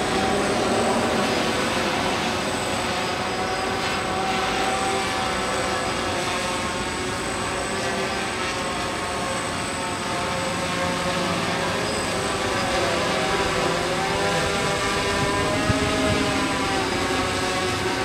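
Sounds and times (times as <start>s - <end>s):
drone motors buzzing whine: 0.0s - 18.0s.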